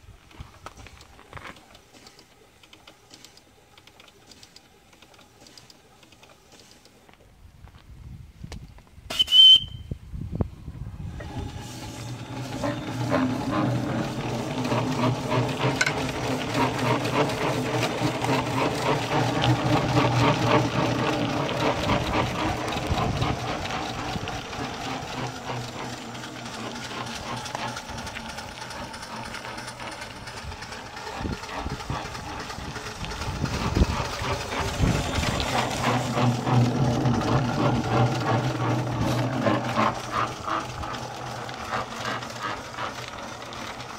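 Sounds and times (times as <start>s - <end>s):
steam engine exhaust beats: 9.0s - 43.9s.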